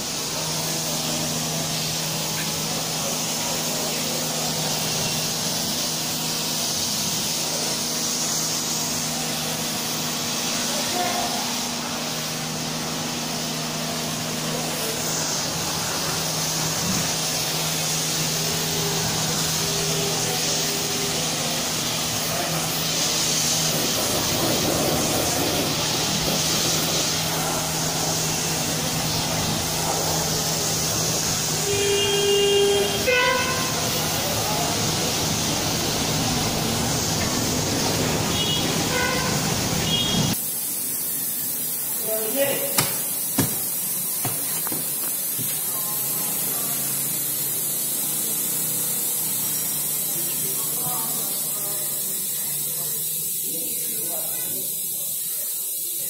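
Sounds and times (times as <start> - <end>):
steady motor hum: 0.0 - 40.4
pressure washer spraying water: 0.0 - 56.0.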